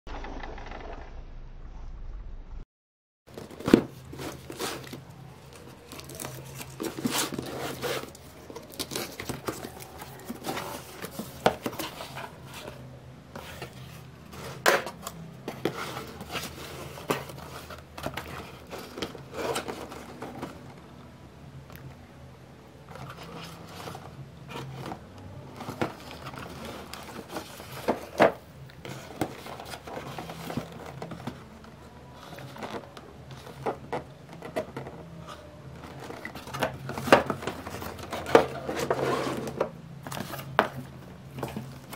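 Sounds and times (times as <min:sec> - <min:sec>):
cardboard packaging rustling: 0:03.3 - 0:21.0, 0:22.8 - 0:41.9.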